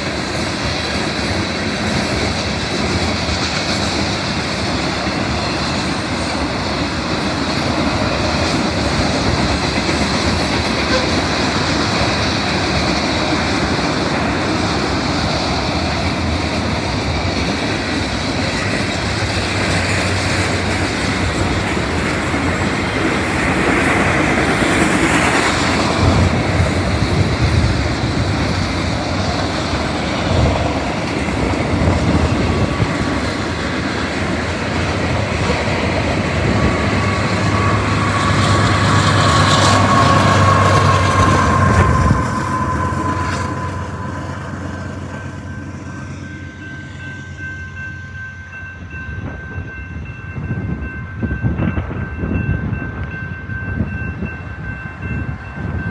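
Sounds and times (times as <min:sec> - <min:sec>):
wheels clacking on rail joints: 0:00.0 - 0:45.8
freight train rolling past: 0:00.0 - 0:55.9
locomotive engine drone and whine: 0:00.0 - 0:55.9
crossing bell ringing: 0:10.6 - 0:12.0, 0:28.7 - 0:55.9.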